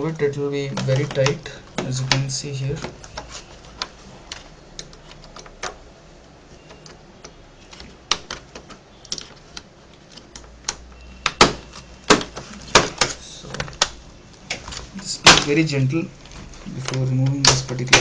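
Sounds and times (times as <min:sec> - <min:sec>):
plastic clips clicking and snapping: 0:06.7 - 0:15.6.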